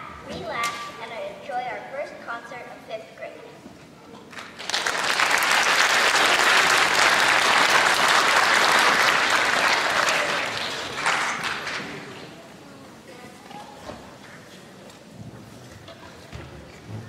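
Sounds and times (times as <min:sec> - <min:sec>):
audience applauding: 0:04.3 - 0:12.4.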